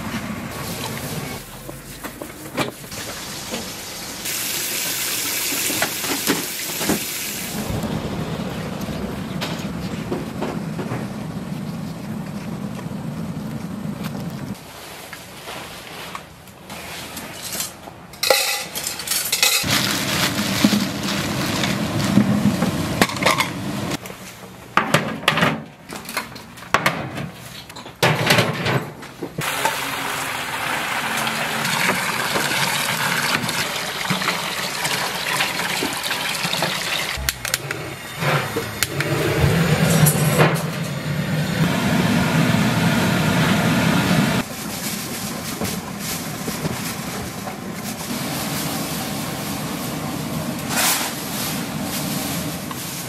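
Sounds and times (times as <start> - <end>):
burners roaring: 7.4 - 14.6, 37.2 - 44.4
metal pots and lids clanking: 17.5 - 19.8, 23.0 - 23.6, 37.2 - 41.1.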